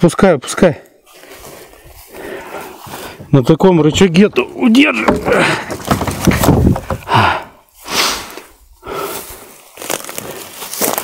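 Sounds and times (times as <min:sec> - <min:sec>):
man breathing hard: 0:01.0 - 0:03.3, 0:07.0 - 0:10.6.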